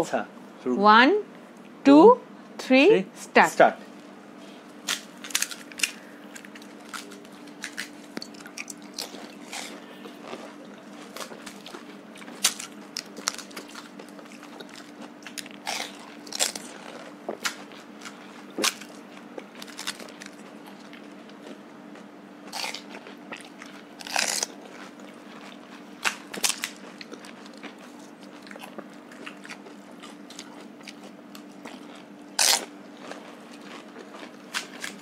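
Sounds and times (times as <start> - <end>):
crisp shells crunching: 4.8 - 21.0, 24.0 - 28.6, 30.3 - 35.0
chewing: 4.9 - 35.0.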